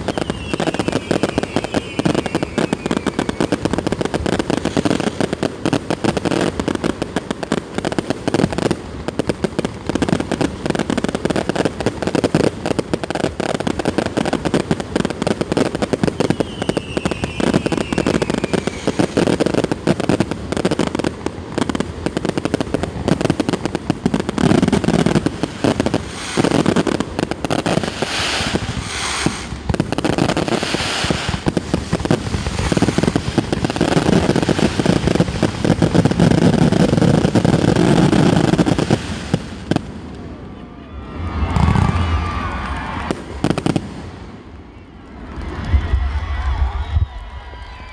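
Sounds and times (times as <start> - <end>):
falling firework whistle: 0.0 - 5.2, 15.6 - 20.8, 24.4 - 39.5, 40.4 - 44.0, 44.6 - 47.9
fireworks bangs and crackling: 0.0 - 47.9.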